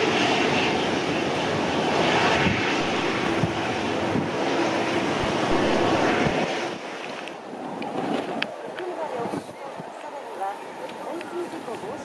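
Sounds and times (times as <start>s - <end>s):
distant jet engines humming: 0.0s - 12.0s
wind buffeting microphone: 1.4s - 10.1s.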